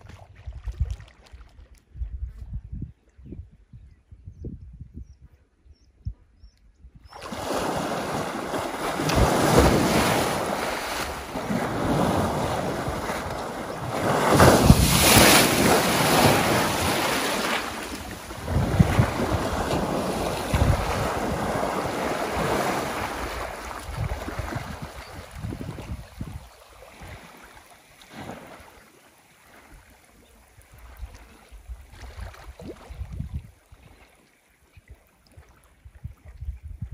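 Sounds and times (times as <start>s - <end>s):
elephant splashing through water: 7.2s - 25.9s, 26.8s - 28.8s.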